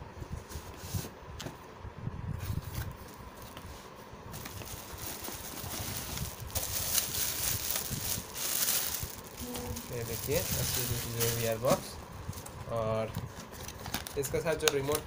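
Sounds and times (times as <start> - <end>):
plastic wrapping crinkling: 4.3 - 15.0.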